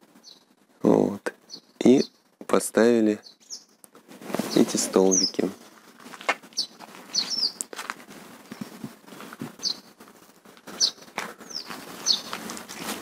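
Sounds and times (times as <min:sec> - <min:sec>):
small bird chirping: 0:00.1 - 0:00.6, 0:01.3 - 0:02.4, 0:03.2 - 0:05.8, 0:06.4 - 0:07.7, 0:09.5 - 0:10.0, 0:10.6 - 0:12.6.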